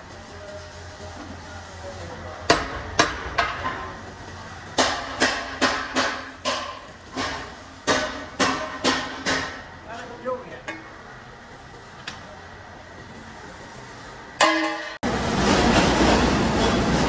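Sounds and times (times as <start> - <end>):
hammer striking sheet steel: 2.4 - 4.0, 4.7 - 9.7, 14.4 - 17.0.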